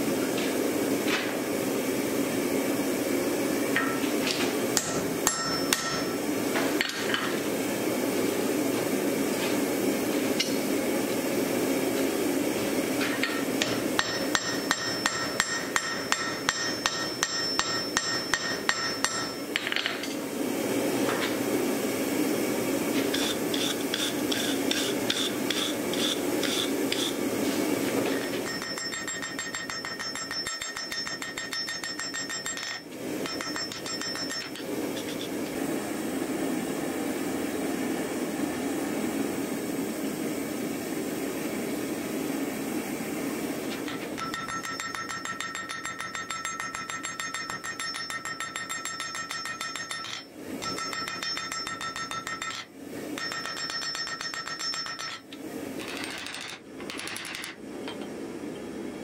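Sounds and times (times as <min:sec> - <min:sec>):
hammer striking hot steel on anvil: 0:04.8 - 0:06.2, 0:13.2 - 0:19.7, 0:23.1 - 0:27.2, 0:28.2 - 0:35.3, 0:43.9 - 0:55.3.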